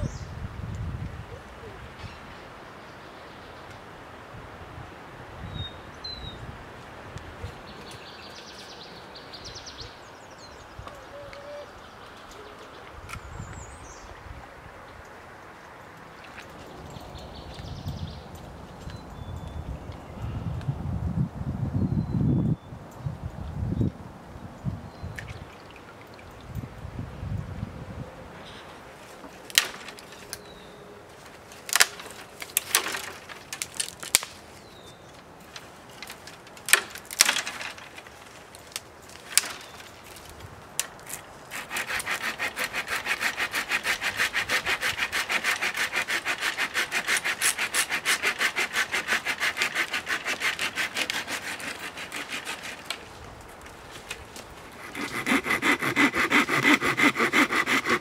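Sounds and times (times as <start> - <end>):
sharp snaps and cracks: 29.4 - 30.5, 31.5 - 42.3
hand saw cutting wood: 41.1 - 53.1, 54.8 - 58.0.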